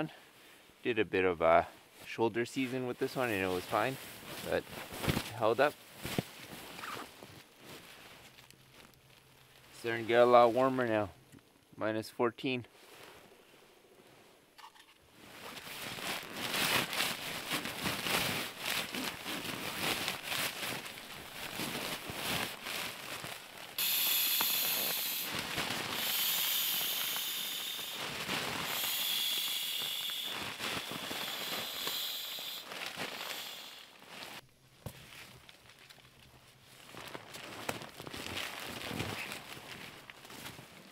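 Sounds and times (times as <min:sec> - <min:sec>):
fire crackling and popping: 0:16.1 - 0:34.5
steady hiss: 0:16.6 - 0:34.4.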